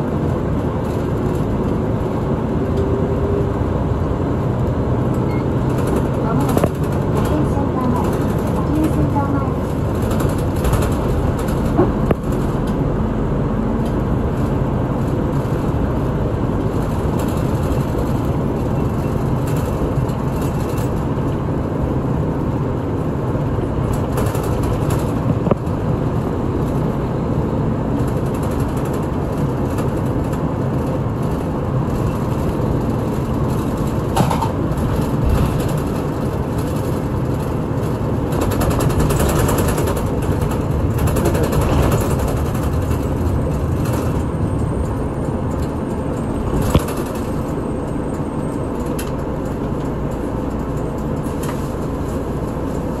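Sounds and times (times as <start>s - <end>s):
bus engine and road drone: 0.0s - 53.0s
knocks and rattles: 5.6s - 12.9s, 28.0s - 47.9s.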